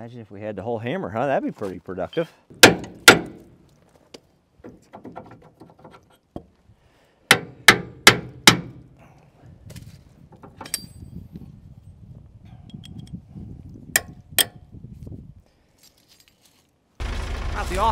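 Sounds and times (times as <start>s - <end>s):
hammer striking steel bar: 2.6s - 3.4s, 7.3s - 8.8s, 14.0s - 14.6s
ringing metal clink: 10.6s - 11.1s.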